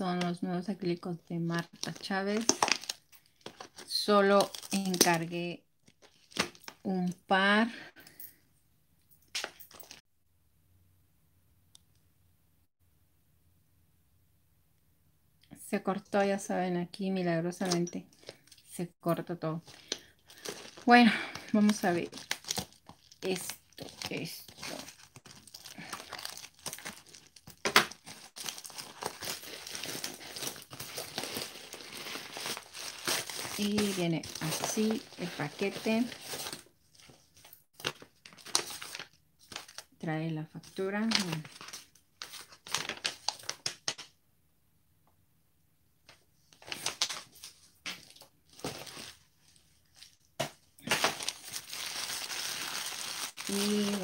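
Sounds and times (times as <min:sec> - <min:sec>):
metallic mailer crinkling: 0:19.6 - 0:39.8, 0:50.8 - 0:54.0.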